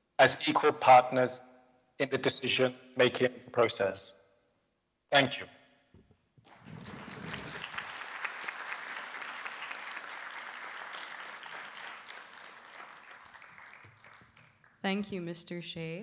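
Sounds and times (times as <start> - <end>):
audience applauding: 6.5 - 14.8.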